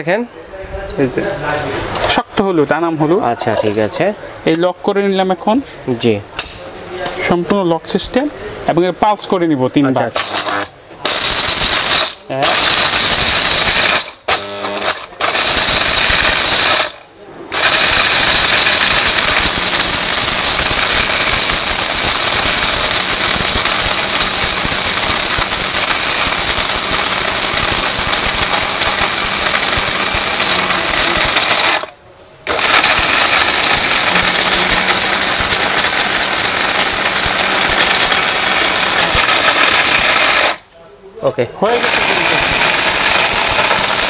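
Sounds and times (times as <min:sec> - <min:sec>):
mixer grinder whirring: 0:10.2 - 0:40.6, 0:41.7 - 0:44.0.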